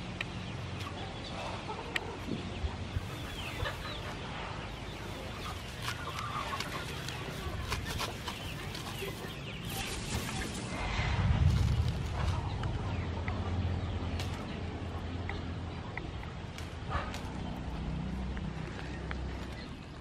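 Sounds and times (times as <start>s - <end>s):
chickens clucking: 0.0s - 11.2s, 11.9s - 20.0s
leaves crackling and rustling: 2.9s - 13.1s, 14.1s - 14.7s.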